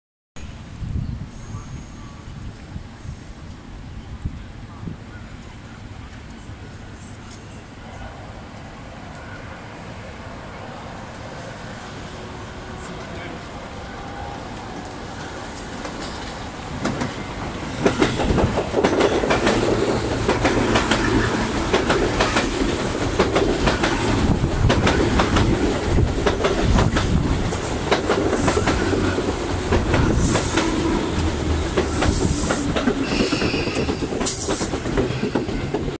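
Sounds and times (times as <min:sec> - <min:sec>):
train wheels clacking over rail joints: 0:14.8 - 0:36.0.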